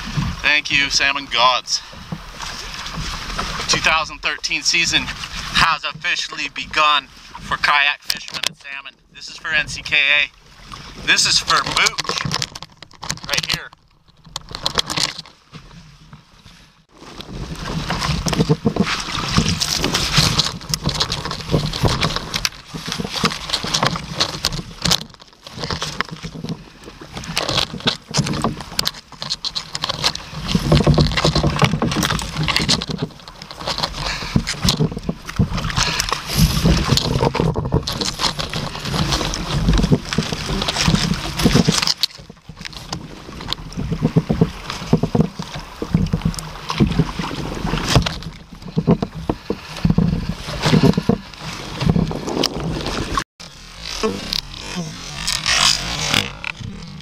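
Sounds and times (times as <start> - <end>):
water sloshing against kayak: 0.0 - 57.0
rustling and clattering of gear: 10.8 - 16.2, 17.0 - 57.0.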